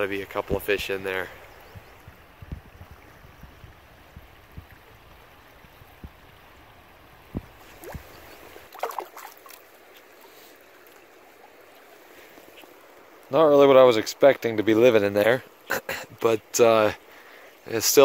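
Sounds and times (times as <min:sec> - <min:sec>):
river water flowing: 0:00.0 - 0:18.0
wind thumps on microphone: 0:01.7 - 0:04.9, 0:07.3 - 0:08.2
water splashing: 0:07.3 - 0:13.2.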